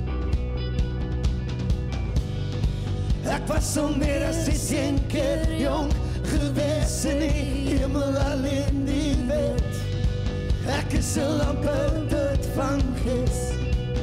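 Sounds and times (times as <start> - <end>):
live rock band playing: 0.0 - 14.0
man and woman singing: 3.2 - 10.0, 10.6 - 14.0.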